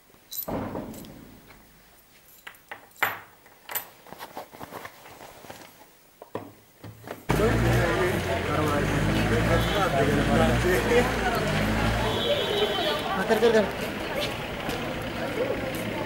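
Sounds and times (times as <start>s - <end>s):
loud outdoor noise: 7.3s - 16.0s.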